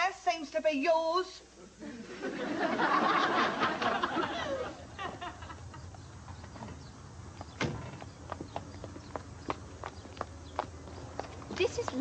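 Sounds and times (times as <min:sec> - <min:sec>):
studio audience laughing: 0:01.8 - 0:05.6.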